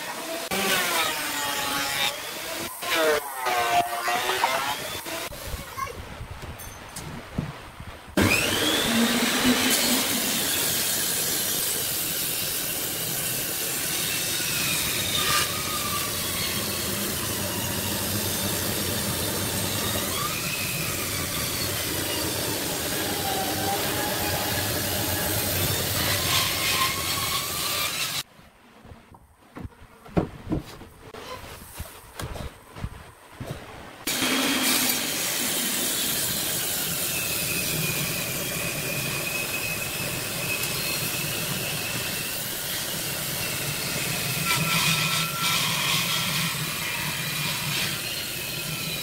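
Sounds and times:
table saw cutting wood: 0.0s - 5.3s, 8.2s - 28.3s, 34.1s - 49.0s
wood knocks: 29.5s - 30.9s.

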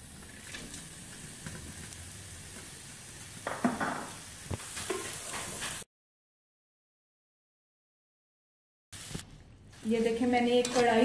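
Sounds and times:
onions sizzling in hot oil: 0.0s - 5.9s, 9.0s - 11.0s.

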